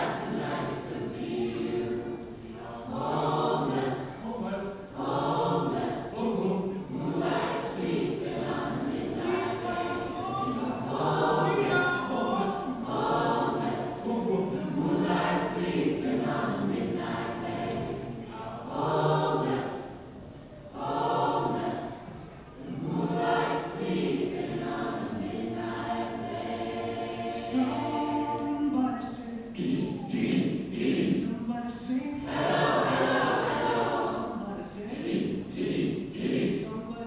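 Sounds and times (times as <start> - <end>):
mixed choir singing: 0.0 - 37.0.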